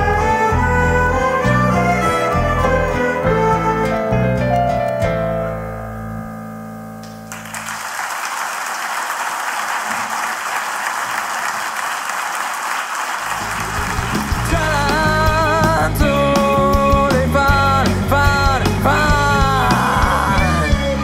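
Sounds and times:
violins guitars and piano playing: 0.0s - 6.2s, 13.5s - 21.0s
audience applauding: 7.3s - 15.0s.

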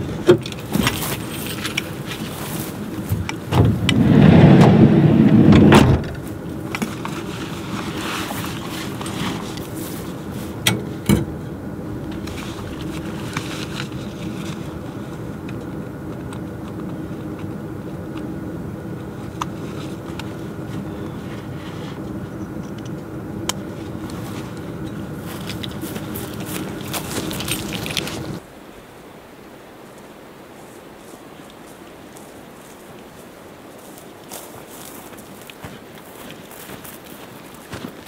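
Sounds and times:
engine and road hum: 0.0s - 28.6s
loud rush: 3.6s - 6.5s
small clicks and rattles: 25.3s - 28.4s.

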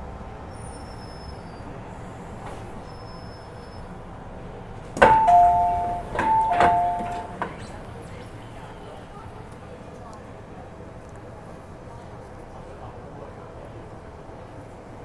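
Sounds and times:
low rumble of train: 0.0s - 15.0s
two-tone electronic chime: 5.1s - 7.4s.

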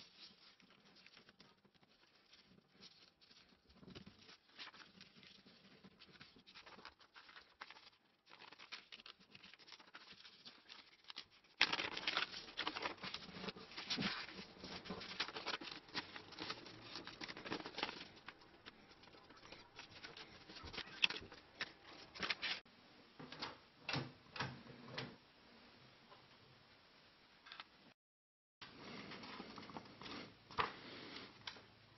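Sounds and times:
paper creasing strokes: 0.0s - 22.7s
paper crinkling and rustling: 0.0s - 22.7s.

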